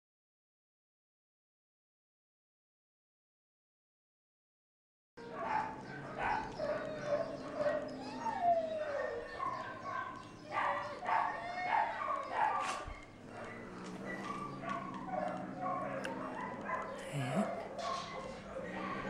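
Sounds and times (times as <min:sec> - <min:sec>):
dogs yipping and whining: 0:05.2 - 0:19.0.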